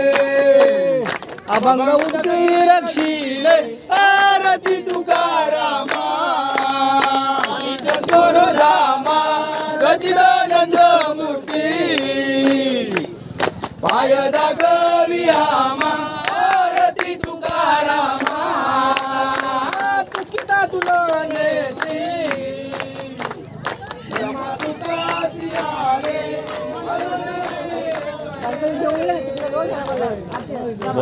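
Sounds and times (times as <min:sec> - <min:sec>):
crowd singing in unison: 0:00.0 - 0:31.0
hands clapping in time: 0:00.0 - 0:31.0.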